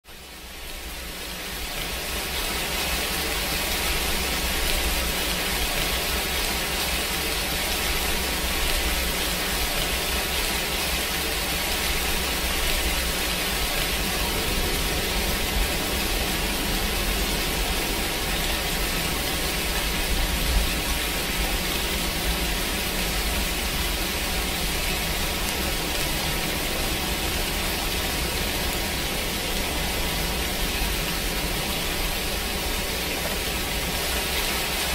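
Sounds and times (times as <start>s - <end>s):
rain-like hiss: 0.1s - 34.9s.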